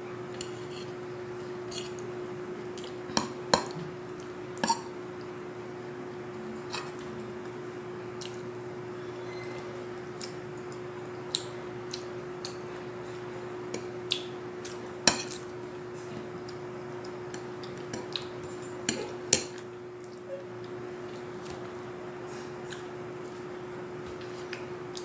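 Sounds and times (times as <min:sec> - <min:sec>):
steady hum: 0:00.0 - 0:25.0
fork scraping ceramic plate: 0:01.7 - 0:02.0.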